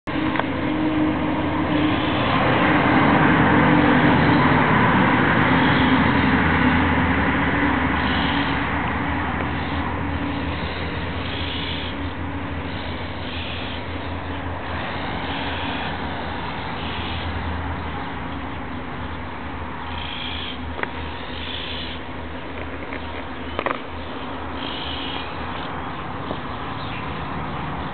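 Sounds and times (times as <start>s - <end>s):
vehicle engine and tyre noise: 0.0s - 27.9s.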